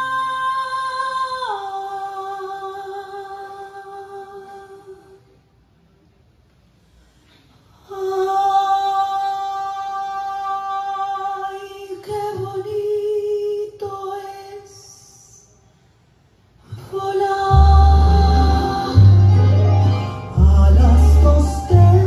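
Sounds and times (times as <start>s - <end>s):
person singing unaccompanied: 16.8s - 22.0s.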